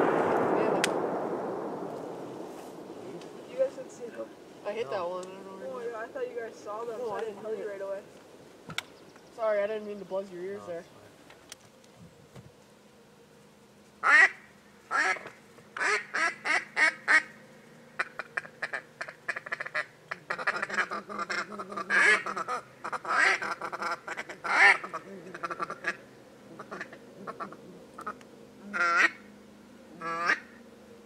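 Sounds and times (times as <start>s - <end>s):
duck call quacking: 14.0s - 15.2s, 18.0s - 29.2s, 30.0s - 30.6s.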